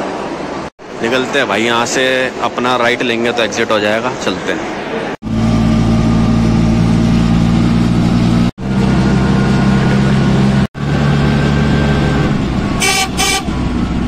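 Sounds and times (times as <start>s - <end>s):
auto-rickshaw engine running: 5.2s - 14.0s.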